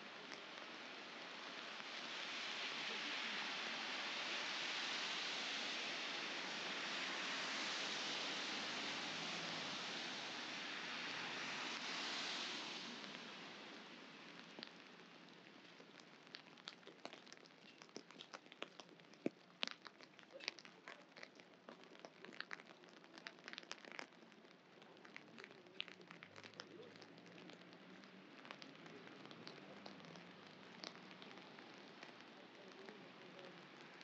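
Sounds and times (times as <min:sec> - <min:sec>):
rain on wet pavement: 0:00.0 - 0:34.0
raindrops ticking: 0:10.6 - 0:34.0.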